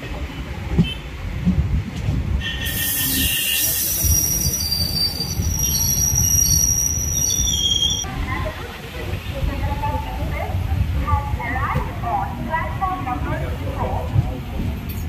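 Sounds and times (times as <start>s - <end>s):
low rumble of train coaches: 0.0s - 15.0s
train wheels squealing on rails: 2.4s - 8.1s.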